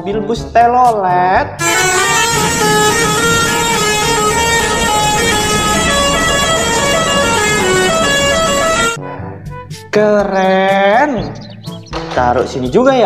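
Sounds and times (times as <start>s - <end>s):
bus horn playing melody: 1.6s - 9.0s.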